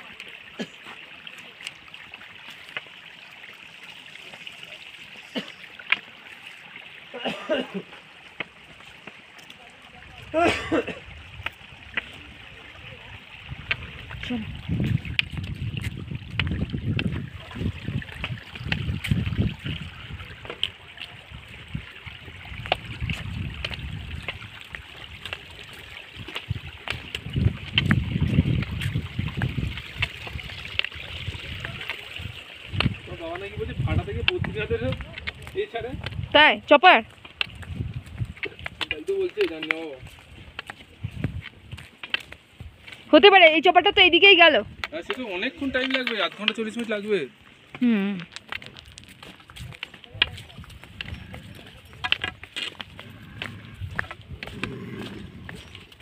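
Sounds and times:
running water hissing: 0:00.0 - 0:10.3, 0:11.0 - 0:35.9
wind buffeting a microphone: 0:10.0 - 0:45.9, 0:48.6 - 0:56.0.

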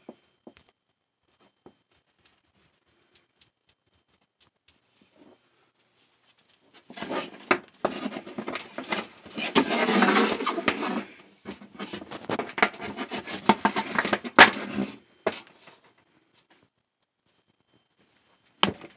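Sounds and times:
hose scraping across wooden bench: 0:06.8 - 0:15.8.

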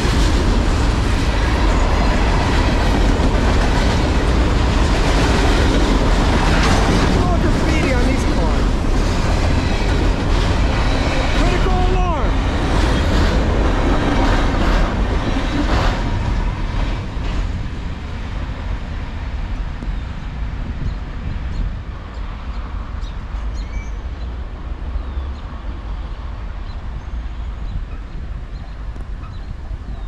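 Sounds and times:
train wheels clacking: 0:00.0 - 0:17.8
freight train rumble: 0:00.0 - 0:30.0.

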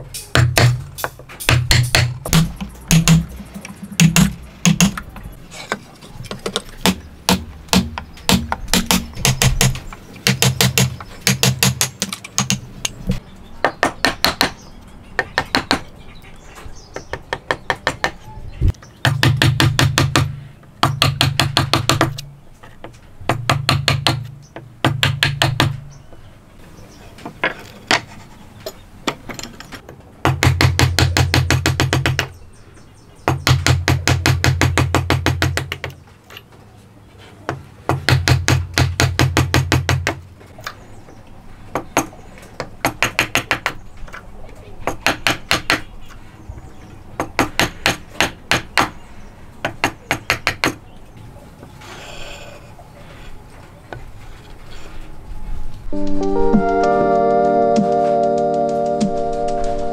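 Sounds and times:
chisel struck into wood: 0:04.0 - 0:05.0, 0:06.8 - 0:12.6, 0:23.3 - 0:25.8.

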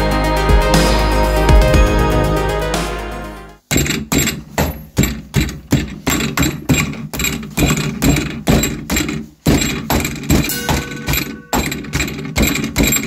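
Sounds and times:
wooden mallet striking plastic: 0:03.7 - 0:13.0.

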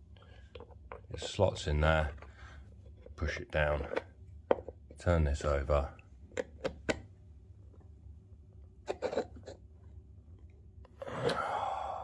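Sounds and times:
person breathing out heavily: 0:11.0 - 0:12.0.

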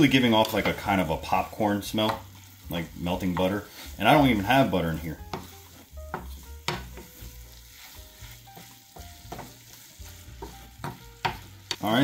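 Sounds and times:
faint frying sizzle: 0:00.0 - 0:12.0
spatula scraping a frying pan: 0:00.0 - 0:12.0.

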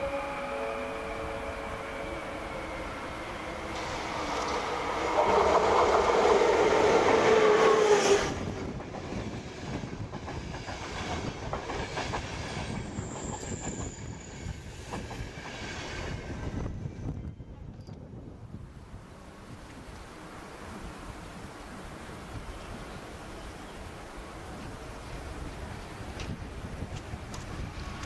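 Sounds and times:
electric locomotive whine: 0:00.0 - 0:28.0
train wheels clacking over rail joints: 0:03.7 - 0:16.2.

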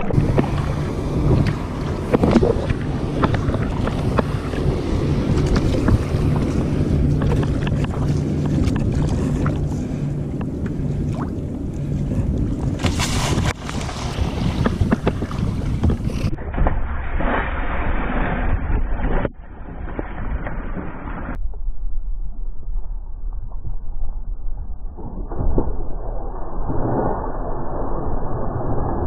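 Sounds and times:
wind buffeting microphone: 0:00.0 - 0:17.3
water splashing against kayak hull: 0:00.0 - 0:19.2
loud splash of bow: 0:12.8 - 0:19.0.

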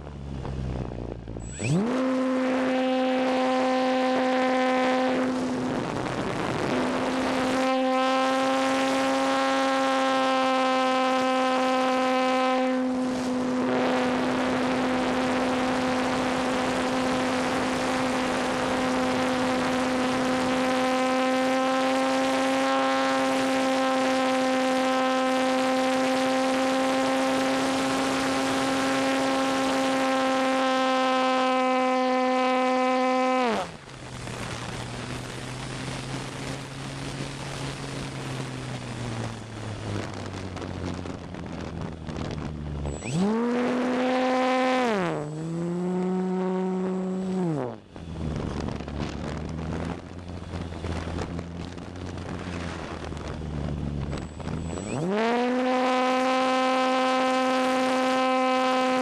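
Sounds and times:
electric motor and propeller whine: 0:00.0 - 0:59.0
wind rush over microphone: 0:00.0 - 0:59.0.

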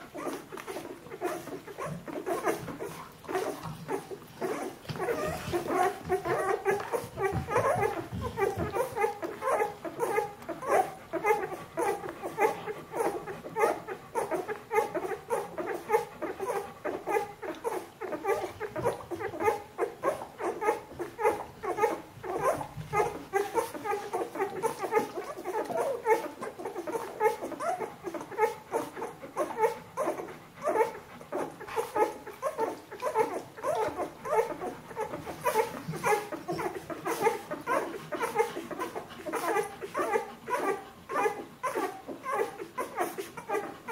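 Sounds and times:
puppies squeaking: 0:00.0 - 0:43.9.

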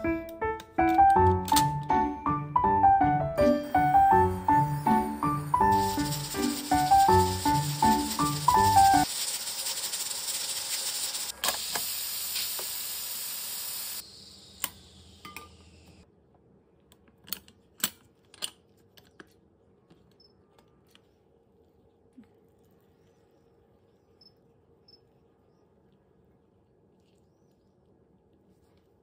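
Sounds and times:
steam hissing from valve: 0:03.6 - 0:15.8.

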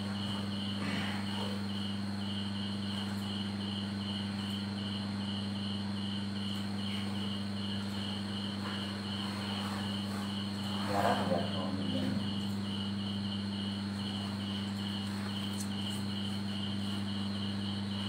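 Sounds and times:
cricket chirping: 0:00.0 - 0:18.0
low hum and hiss: 0:00.0 - 0:18.0.

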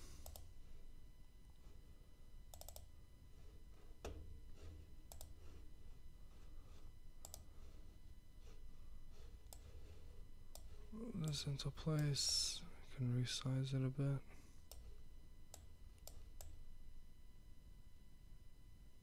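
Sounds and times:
faint low hum: 0:00.0 - 0:19.0
computer mouse clicking: 0:00.2 - 0:00.5, 0:02.5 - 0:02.9, 0:05.0 - 0:05.5, 0:07.2 - 0:07.7, 0:09.2 - 0:11.4, 0:14.7 - 0:14.9, 0:15.5 - 0:16.6.

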